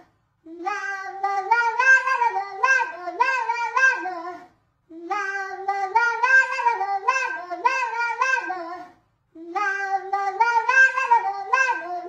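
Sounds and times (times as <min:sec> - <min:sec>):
high-pitched childlike voice singing: 0:00.0 - 0:12.0.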